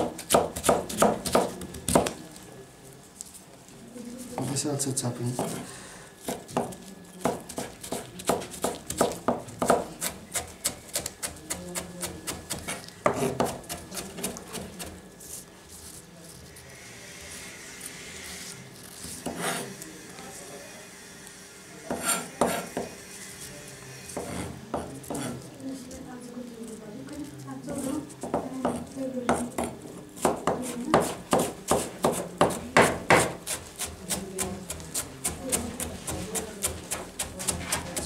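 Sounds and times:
knife chopping on plastic board: 0:00.0 - 0:02.2, 0:05.3 - 0:05.6, 0:06.2 - 0:14.9, 0:21.9 - 0:22.9, 0:28.2 - 0:38.0.

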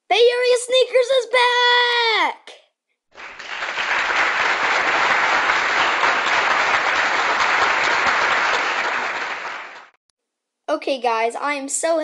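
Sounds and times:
crowd applause: 0:03.2 - 0:10.0.

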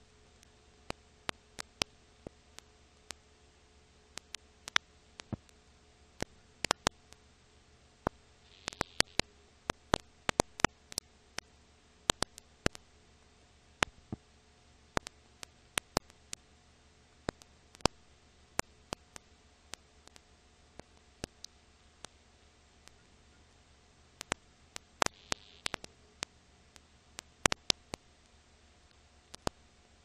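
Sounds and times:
faint hiss and hum: 0:00.0 - 0:30.0
film surface clicks and pops: 0:04.2 - 0:05.6, 0:06.2 - 0:07.0, 0:08.1 - 0:11.5, 0:12.1 - 0:12.8, 0:15.8 - 0:16.4, 0:17.3 - 0:18.0, 0:24.2 - 0:25.9, 0:27.2 - 0:28.0, 0:29.3 - 0:29.6.

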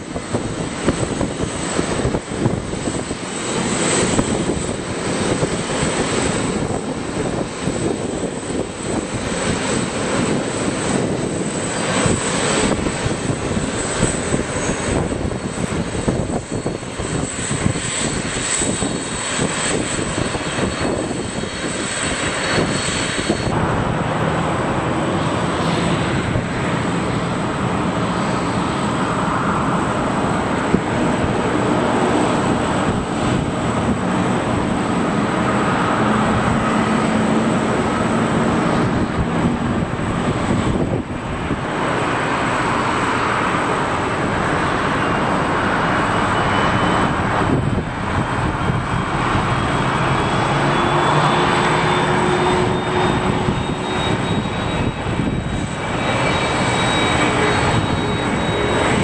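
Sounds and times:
jet engines running: 0:00.0 - 0:59.0.

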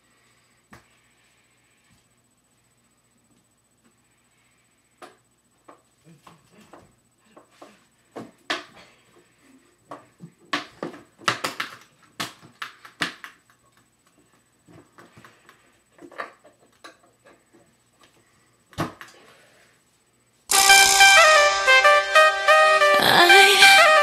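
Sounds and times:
loud music with stepping melody: 0:20.5 - 0:24.0.

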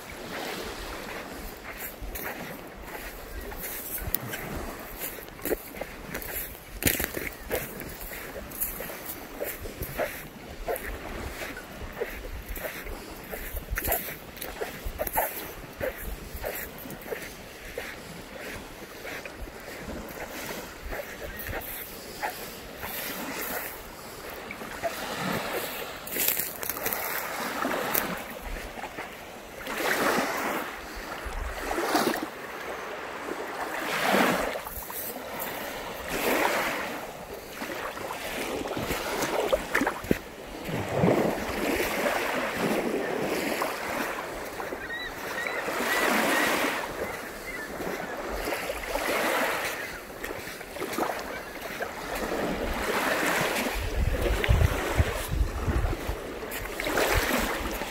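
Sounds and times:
lake waves washing onto shore: 0:00.0 - 0:57.9
wind buffeting microphone: 0:53.6 - 0:57.9.

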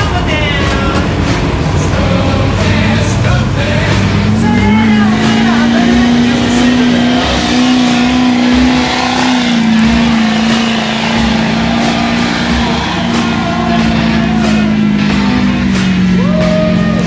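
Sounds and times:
diesel truck engine at high revs: 0:00.0 - 0:17.0.

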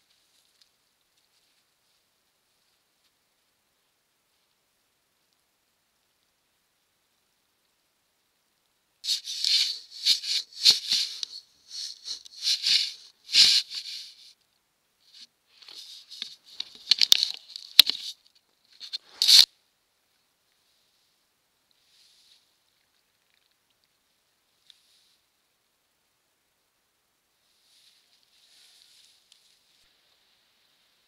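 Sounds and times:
animal scraping at camera: 0:09.1 - 0:14.2.

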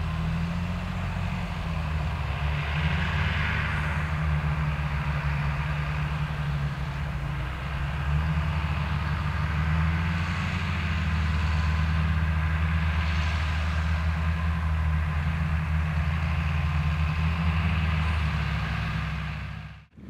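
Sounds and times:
tractor diesel engine droning: 0:00.0 - 0:20.0.

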